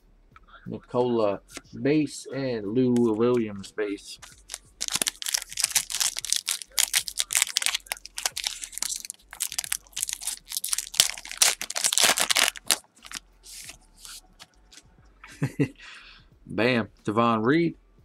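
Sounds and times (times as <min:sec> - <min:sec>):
foil wrapper crinkling: 0:04.2 - 0:14.8.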